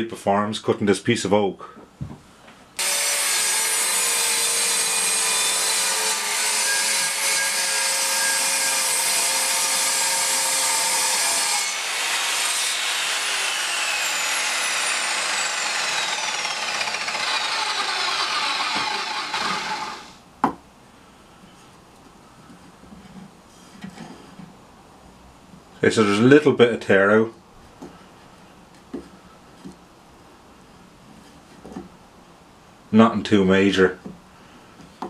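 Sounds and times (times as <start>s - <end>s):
mitre saw cutting wood: 2.8s - 20.2s
saw blade winding down: 2.8s - 20.2s.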